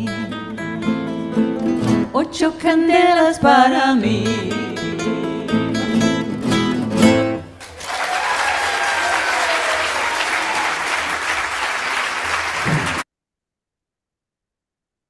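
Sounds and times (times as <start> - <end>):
audience applauding: 7.5 - 13.0.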